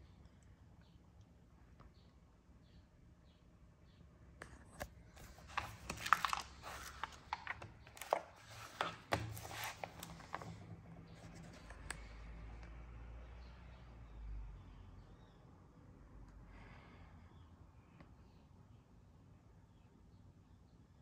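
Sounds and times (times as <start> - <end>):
paper pages rustling: 4.4 - 12.0.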